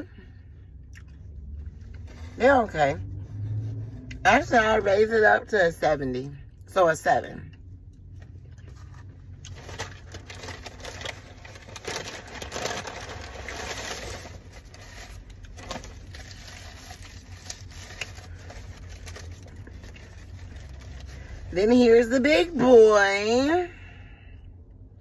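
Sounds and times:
paper bag rustling: 8.6s - 21.6s
paper wrapper crinkling: 8.6s - 21.6s.

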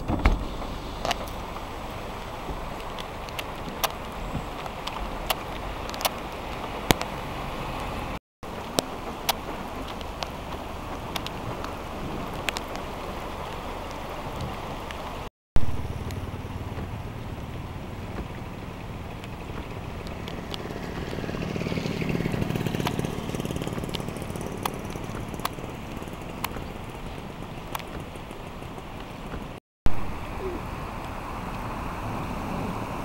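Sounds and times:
loud thump: 0.0s - 0.6s
vehicle engine hum: 0.0s - 33.0s
raindrops ticking: 0.6s - 15.3s, 15.9s - 29.6s
heavy rain hissing: 30.0s - 33.0s.

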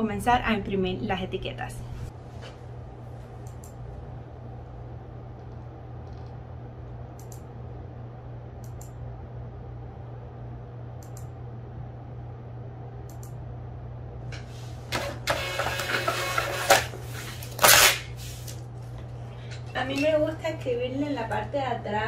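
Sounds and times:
low hum: 0.0s - 15.4s
computer mouse clicks: 3.4s - 3.8s, 5.4s - 6.4s, 7.2s - 7.5s, 8.6s - 9.0s, 11.0s - 11.3s, 13.1s - 13.4s
label printer printing: 14.9s - 18.0s.

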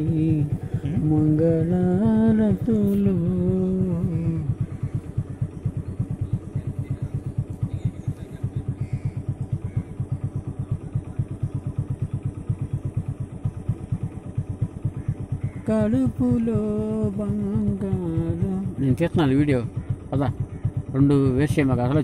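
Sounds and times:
motorcycle engine idling: 0.0s - 22.0s.

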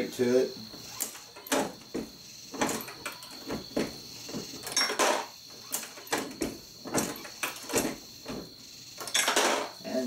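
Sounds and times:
reloading press metallic clacks: 9.0s - 9.8s.

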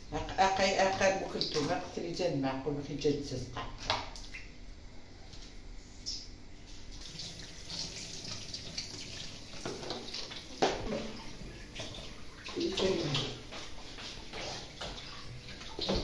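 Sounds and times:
tap running into a sink: 7.0s - 16.0s.

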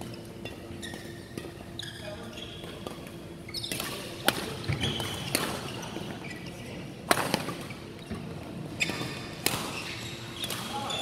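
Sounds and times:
court shoes squeaking: 0.0s - 11.0s
racket striking shuttlecock: 9.4s - 9.8s.

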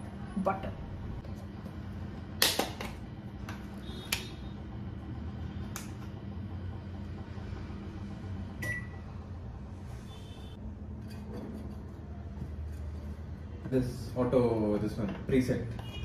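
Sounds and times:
steady low hum: 0.0s - 14.6s.

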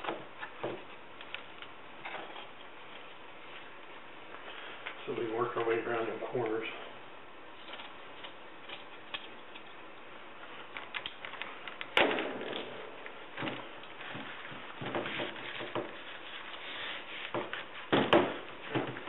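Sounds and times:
gloved hands rustling: 7.4s - 19.0s.

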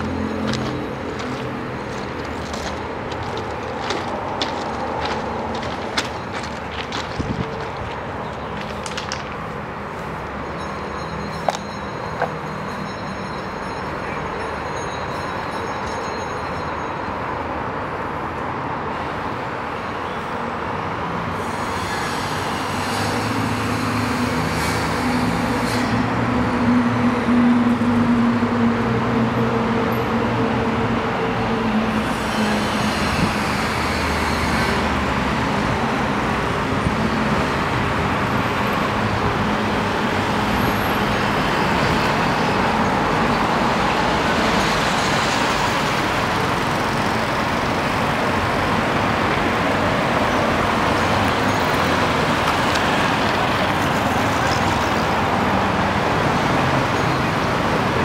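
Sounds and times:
vehicle engine hum: 0.0s - 10.4s
road traffic noise: 0.0s - 58.0s.

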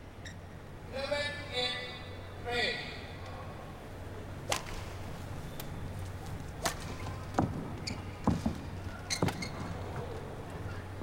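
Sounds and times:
low steady hum: 0.0s - 11.0s
rackets hitting shuttlecock: 4.5s - 5.0s
shoes squeaking on court: 5.5s - 10.9s.

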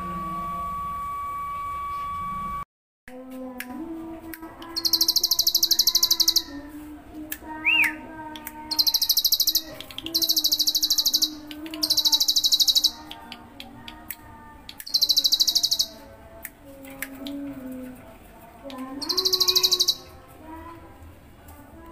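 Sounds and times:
low hum with overtones: 0.0s - 5.4s
bird singing buzzing trills: 4.6s - 6.7s, 8.6s - 13.4s, 14.8s - 16.1s, 18.6s - 20.3s.

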